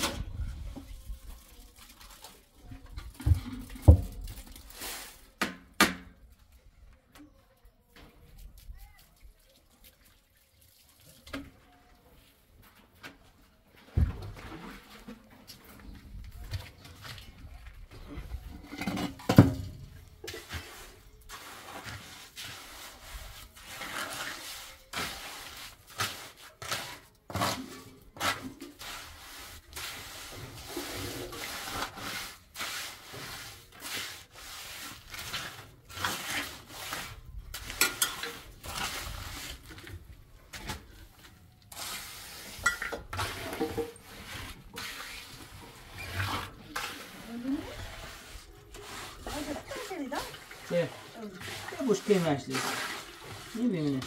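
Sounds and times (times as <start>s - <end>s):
trowel scraping wet mortar: 20.2s - 54.0s.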